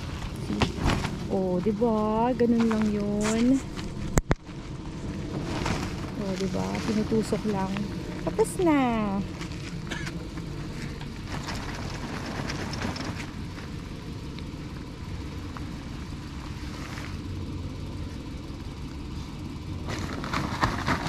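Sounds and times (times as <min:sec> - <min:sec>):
rustling: 0:00.0 - 0:08.6, 0:09.2 - 0:13.8, 0:15.5 - 0:17.2
low engine hum: 0:00.0 - 0:21.0.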